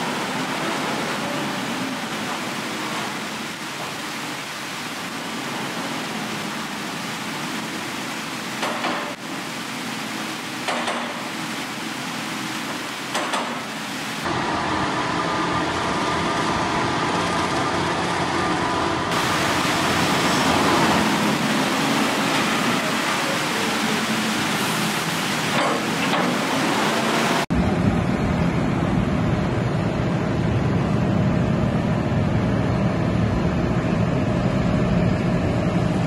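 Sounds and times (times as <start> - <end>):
farm machinery running: 10.2 - 36.0
deep machinery drone and hum: 14.2 - 36.0.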